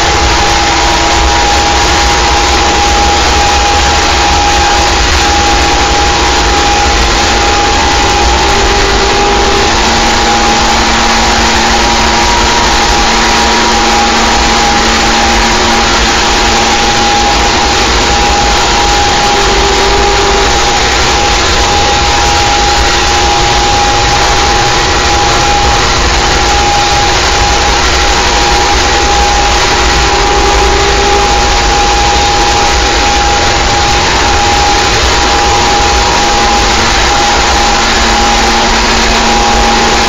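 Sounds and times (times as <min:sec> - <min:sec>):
deep rumble: 0:00.0 - 0:40.0
distorted static noise: 0:00.0 - 0:40.0
high drone: 0:00.0 - 0:40.0.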